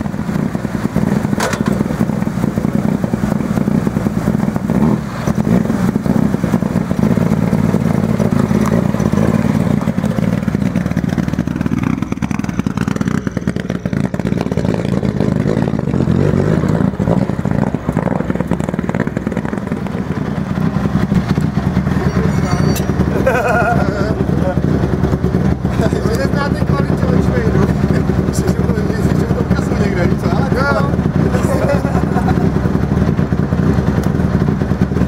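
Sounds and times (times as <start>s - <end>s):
car engine running: 0.0s - 35.0s.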